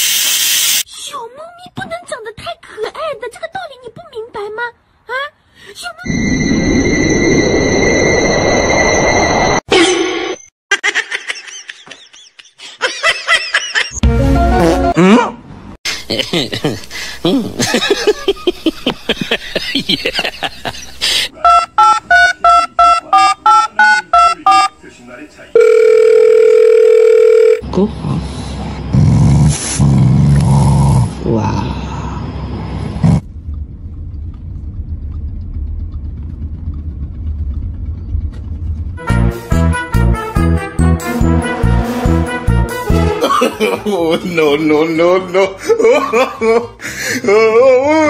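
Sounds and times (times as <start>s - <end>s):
telephone keypad beeps: 21.4s - 24.7s.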